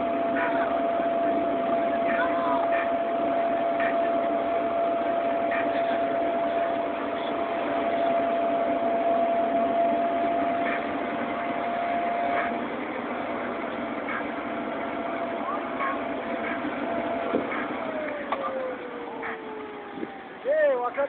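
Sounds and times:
motor drone: 0:00.0 - 0:20.4
constant whine: 0:00.0 - 0:21.0.

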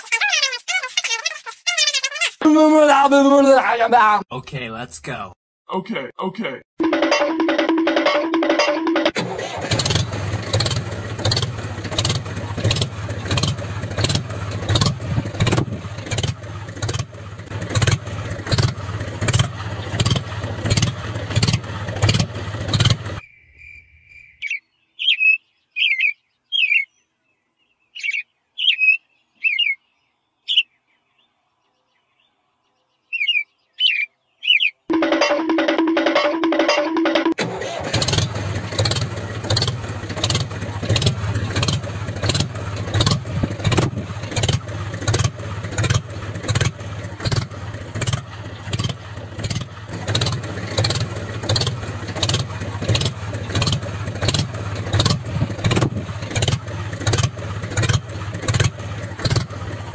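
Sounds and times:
tractor engine chugging: 0:06.8 - 0:23.2, 0:34.9 - 0:59.9
bird chirps: 0:23.2 - 0:34.9.

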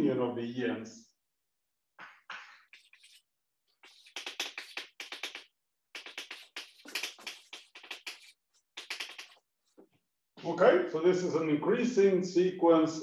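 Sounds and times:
chalk scratching on blackboard: 0:02.3 - 0:09.5.

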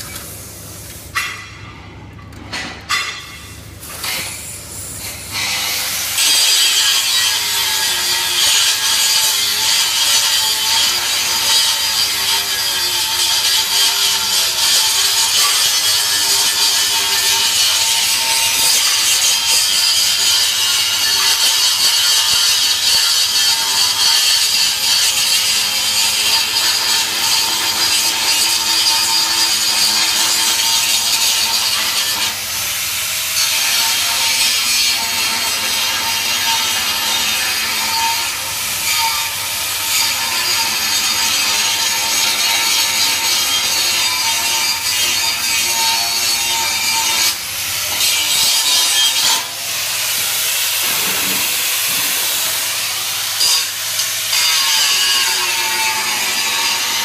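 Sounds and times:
grinder grinding steel: 0:02.9 - 0:57.0.

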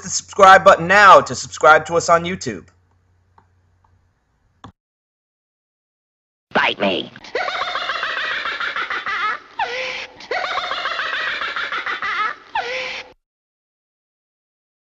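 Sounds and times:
high-pitched laughter: 0:07.2 - 0:13.2.

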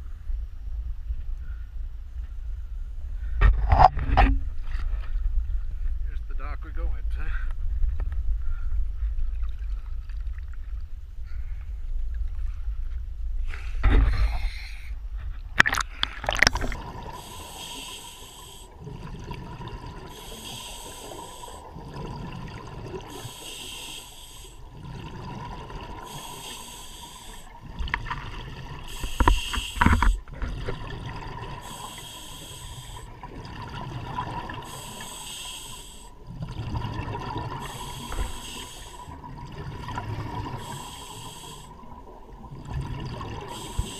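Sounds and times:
water sloshing and splashing: 0:08.9 - 0:13.1, 0:15.1 - 0:23.4, 0:24.5 - 0:35.0, 0:36.2 - 0:43.9
scuba regulator breathing: 0:13.5 - 0:15.0, 0:15.8 - 0:18.9, 0:20.0 - 0:21.8, 0:23.0 - 0:24.7, 0:25.9 - 0:27.7, 0:28.8 - 0:30.3, 0:31.4 - 0:33.3, 0:34.5 - 0:36.2, 0:37.5 - 0:39.2, 0:40.3 - 0:41.9, 0:43.4 - 0:43.9.

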